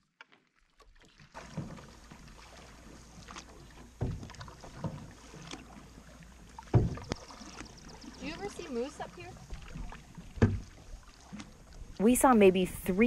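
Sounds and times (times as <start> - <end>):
paddle strokes splashing: 0.0 - 13.0
wind and water hiss: 1.4 - 13.0
low thumps: 6.7 - 7.2, 10.2 - 10.8.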